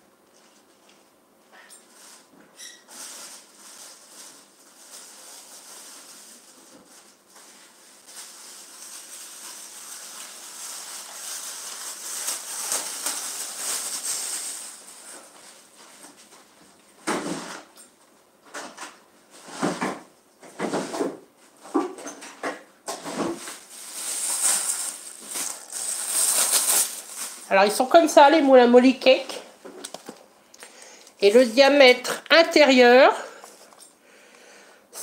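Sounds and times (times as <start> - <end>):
rustling: 1.8 - 16.7, 22.9 - 28.5.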